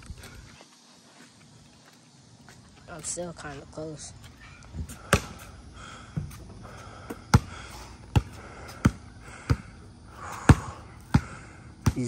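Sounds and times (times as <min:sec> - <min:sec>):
basketball bouncing on concrete: 0:04.9 - 0:05.5, 0:06.1 - 0:09.7, 0:10.3 - 0:12.0.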